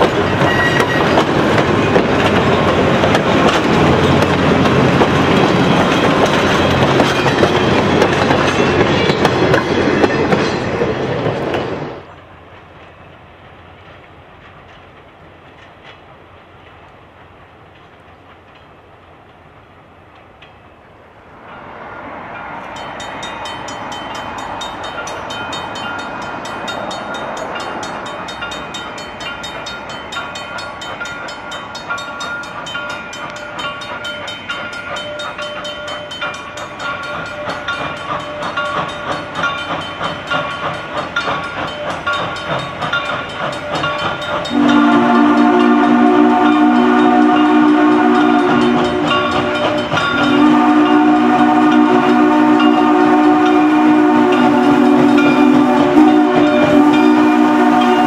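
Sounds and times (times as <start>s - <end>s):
chime steam whistle: 0.0s - 2.0s, 22.8s - 58.0s
steam locomotive exhaust chuffs: 22.9s - 58.0s.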